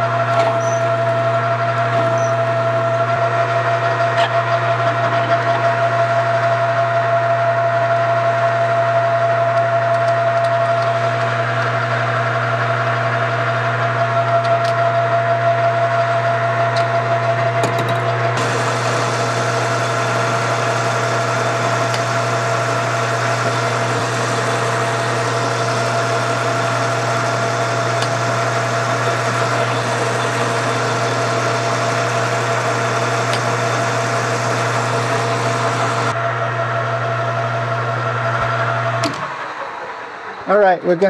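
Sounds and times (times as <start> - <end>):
metal lathe humming: 0.0 - 40.4
cutting hiss: 18.4 - 36.1.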